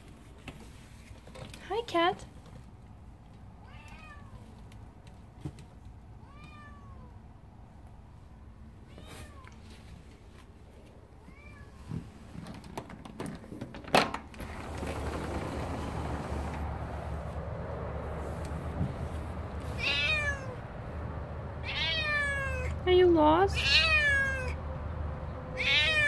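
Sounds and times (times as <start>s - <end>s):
outdoor noise: 0.0s - 26.0s
cat meowing: 3.6s - 4.5s, 6.2s - 7.2s, 8.8s - 9.6s, 11.2s - 11.9s, 19.7s - 20.6s, 21.6s - 22.8s, 23.6s - 24.6s, 25.6s - 26.0s
sliding door clicks and clack: 12.0s - 17.6s.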